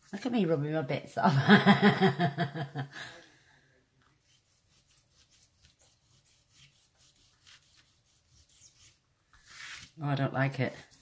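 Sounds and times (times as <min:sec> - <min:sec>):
woman laughing: 0:01.2 - 0:03.2
hand brushing paper: 0:04.0 - 0:10.0.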